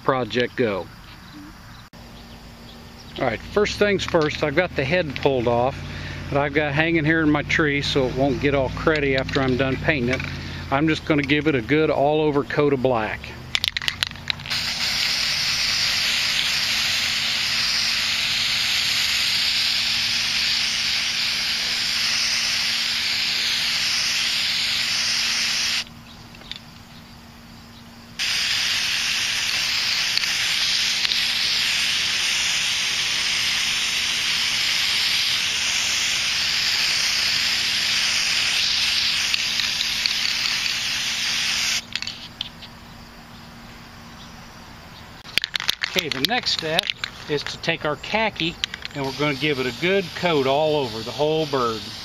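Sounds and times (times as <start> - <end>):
spray paint can hissing: 13.6 - 25.9, 28.2 - 42.3, 48.4 - 52.0.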